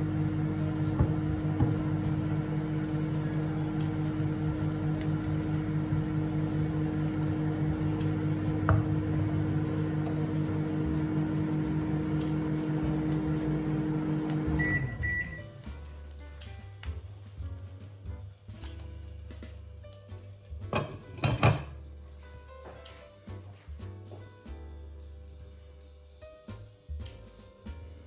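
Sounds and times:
kitchen appliance humming: 0:00.0 - 0:22.2.

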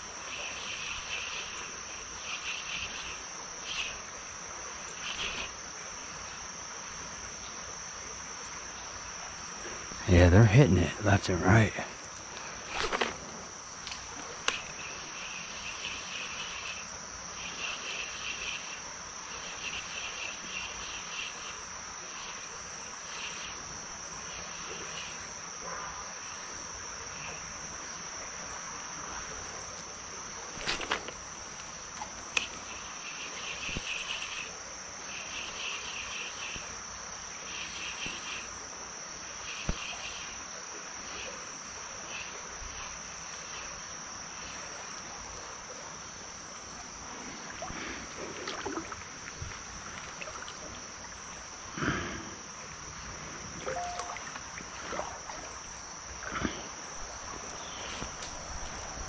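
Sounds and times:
insect high-pitched buzz: 0:00.0 - 0:59.0
insect pulsed chirping: 0:00.0 - 0:59.0
stream rushing: 0:53.0 - 0:59.0.

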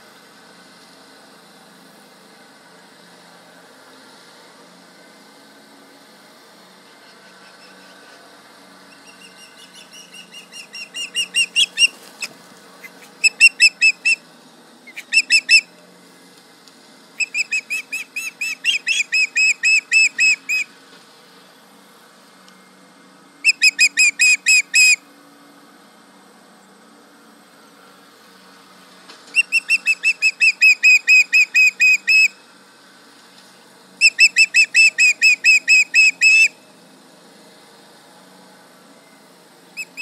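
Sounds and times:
tractor engine humming: 0:00.0 - 0:22.6
osprey alarm calls: 0:08.9 - 0:14.2, 0:14.9 - 0:15.7, 0:17.2 - 0:20.7, 0:23.4 - 0:25.0, 0:29.3 - 0:32.4, 0:34.0 - 0:36.6, 0:39.8 - 0:40.0.

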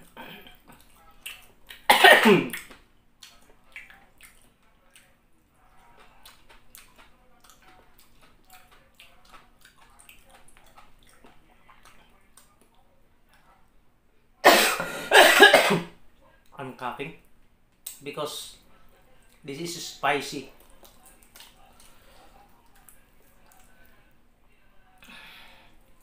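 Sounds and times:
wet chewing sounds: 0:00.0 - 0:01.9, 0:02.5 - 0:13.7, 0:20.4 - 0:24.0
man coughing: 0:01.9 - 0:02.5, 0:14.4 - 0:15.9.

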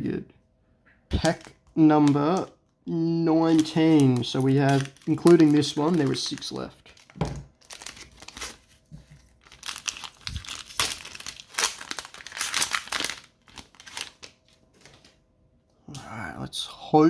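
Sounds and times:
wrapper crinkling and tearing: 0:01.1 - 0:02.5, 0:03.4 - 0:15.1.

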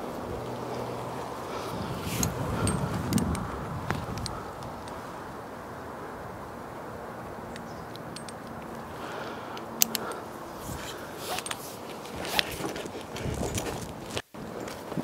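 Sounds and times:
climbing rope being handled: 0:00.0 - 0:05.0, 0:07.5 - 0:15.0
low rushing noise: 0:00.0 - 0:11.2
metallic clicks and clinks: 0:07.5 - 0:08.9, 0:09.6 - 0:10.3.

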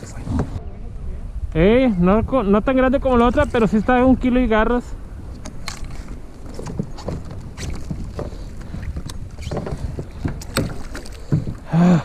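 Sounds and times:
wind rumbling on microphone: 0:00.0 - 0:12.0
fishing gear clicks and knocks: 0:05.3 - 0:11.7.

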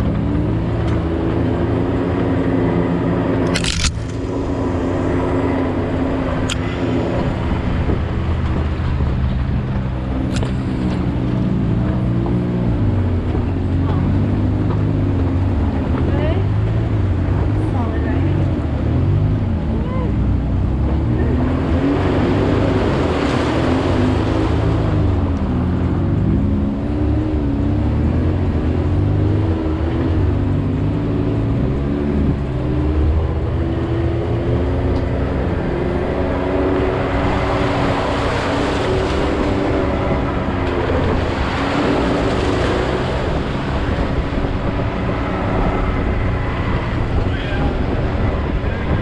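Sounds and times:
utility vehicle engine running: 0:00.0 - 0:49.0.

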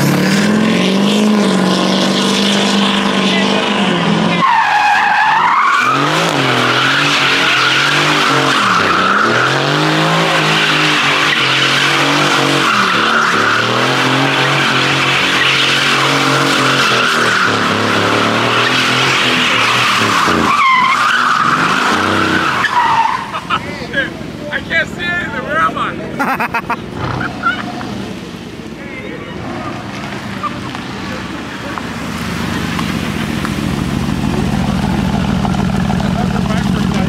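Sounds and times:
car engine at high revs: 0:00.0 - 0:24.4, 0:26.6 - 0:37.0
tyres squealing: 0:04.1 - 0:24.1.

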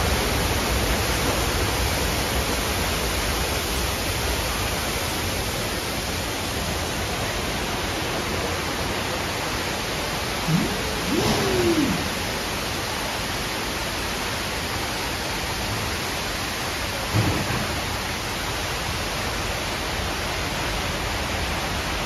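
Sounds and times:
rising and falling tone: 0:10.4 - 0:12.2.

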